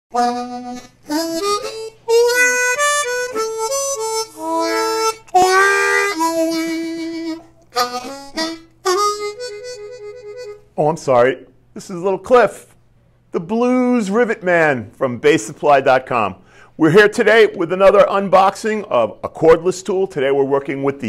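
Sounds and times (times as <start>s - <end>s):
harmonica playing: 0.1s - 10.8s
breaths: 16.4s - 16.8s.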